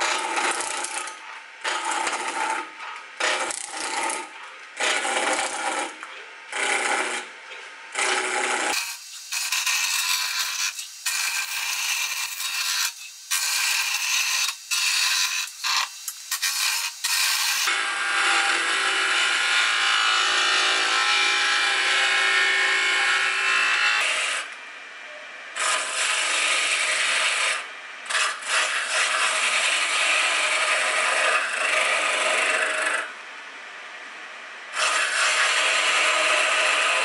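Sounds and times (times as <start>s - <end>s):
chisel cutting spinning wood: 0.0s - 1.1s, 1.7s - 7.3s, 7.9s - 24.5s, 25.6s - 33.1s, 34.8s - 37.0s
wood lathe running: 8.0s - 24.4s, 28.1s - 33.1s, 34.8s - 37.0s.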